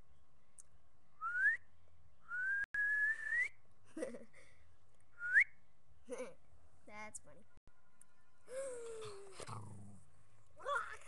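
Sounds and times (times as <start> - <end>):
person whistling rising notes: 1.2 - 1.6, 2.3 - 3.6, 5.2 - 5.5.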